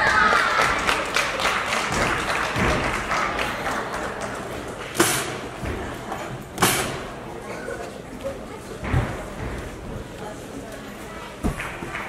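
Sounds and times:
scattered clapping: 0.0s - 5.4s, 11.5s - 12.0s
crowd noise: 0.0s - 12.0s.

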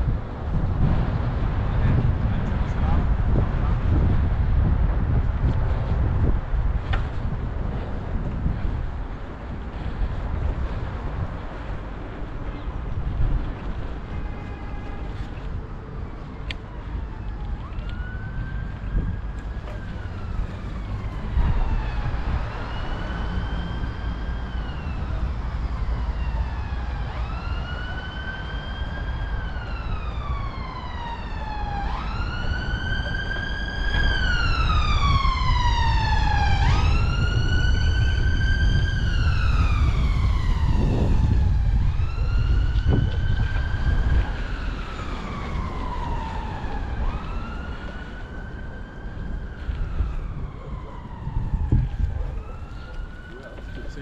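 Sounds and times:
emergency vehicle siren wailing: 13.0s - 54.0s.

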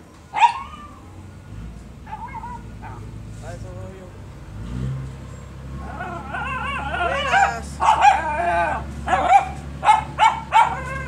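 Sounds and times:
dog whining and yipping: 0.3s - 1.2s, 2.0s - 3.1s, 5.8s - 11.0s
dog barking: 0.4s - 0.7s, 2.0s - 3.1s, 5.9s - 11.0s.

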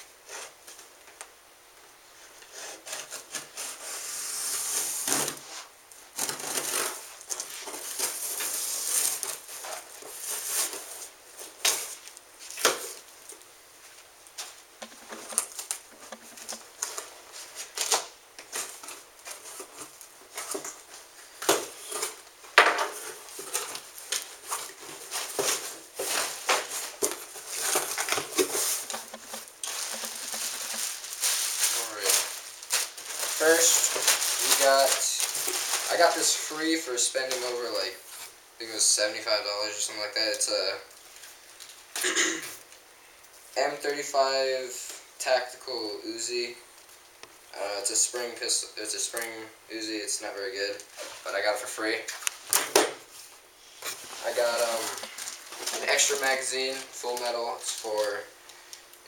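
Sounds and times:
plastic wrapping rustling: 2.2s - 42.8s, 46.6s - 59.0s
packing tape being slit and torn: 2.6s - 5.4s, 23.3s - 36.0s.

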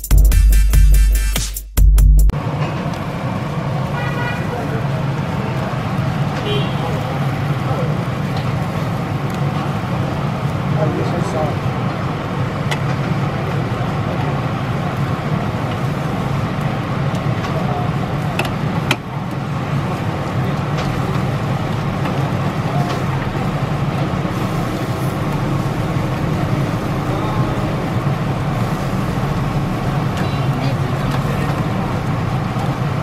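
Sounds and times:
low street ambience rumble: 2.3s - 33.0s.

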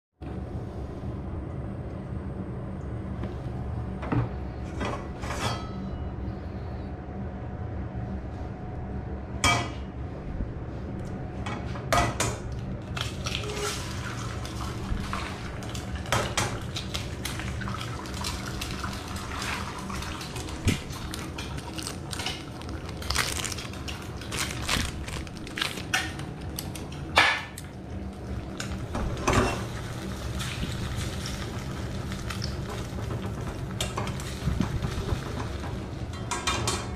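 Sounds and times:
steady low hum: 0.2s - 36.9s
eggs cracking: 20.2s - 27.8s
eggs sizzling in oil: 28.1s - 35.8s.

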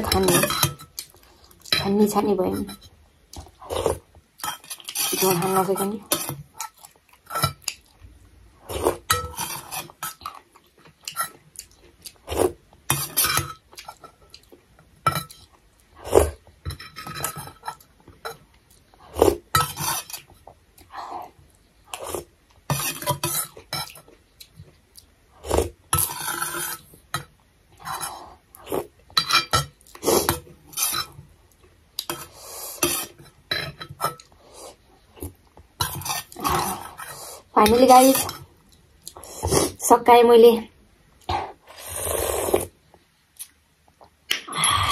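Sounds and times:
person eating: 3.3s - 5.3s, 6.1s - 27.1s, 27.8s - 29.0s, 29.7s - 33.3s, 33.9s - 39.8s, 41.2s - 44.9s.

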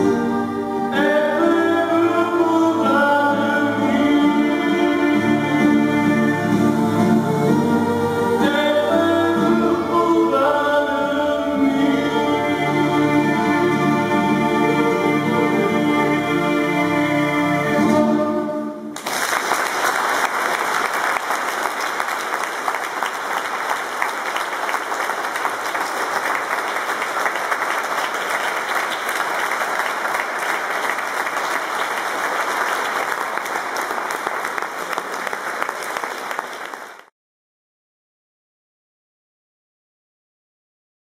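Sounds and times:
audience applauding: 19.0s - 37.1s.

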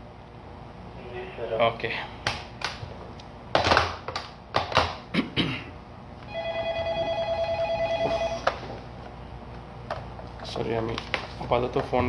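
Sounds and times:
phone ringing: 6.3s - 8.6s.

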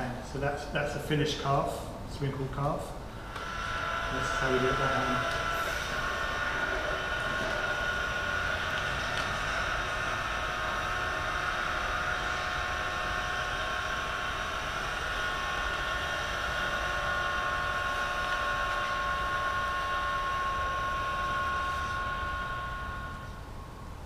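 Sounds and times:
steady high two-tone whine: 0.0s - 24.0s
spray gun hissing: 3.2s - 9.0s.

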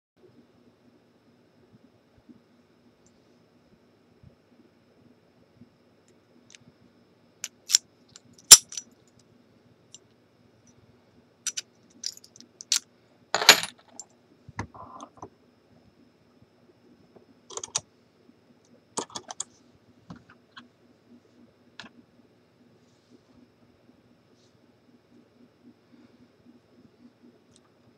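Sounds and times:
keys jingling: 8.5s - 8.8s, 11.5s - 12.8s.

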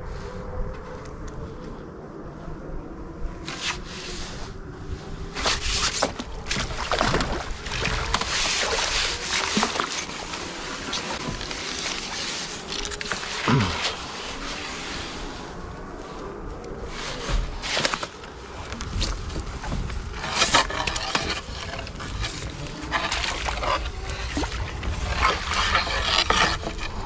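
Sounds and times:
water splashing and sloshing: 5.3s - 15.4s, 16.9s - 27.0s.

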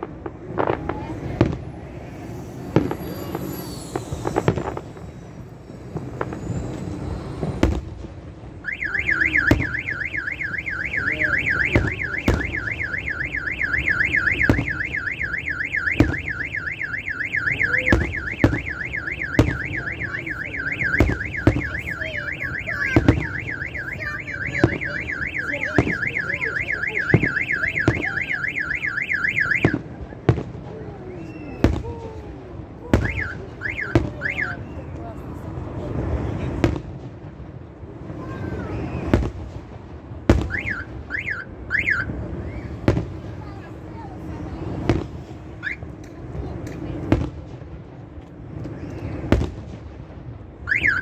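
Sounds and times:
fireworks banging: 0.0s - 51.0s
car alarm warbling: 8.6s - 29.8s, 33.0s - 34.6s, 40.5s - 42.1s, 45.6s - 45.9s, 50.7s - 51.0s.

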